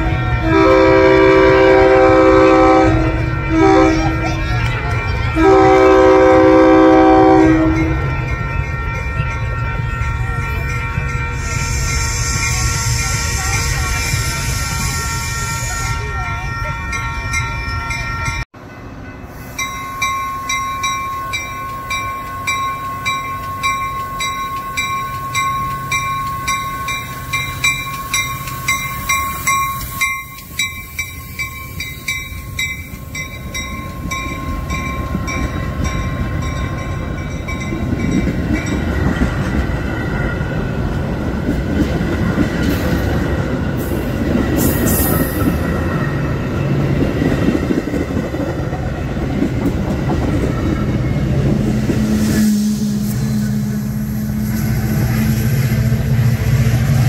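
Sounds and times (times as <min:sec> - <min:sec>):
train horn: 0:00.0 - 0:17.4, 0:20.3 - 0:31.4, 0:50.6 - 0:57.0
crossing bell dinging: 0:00.0 - 0:57.0
train rumble and wheel clatter: 0:00.0 - 0:57.0.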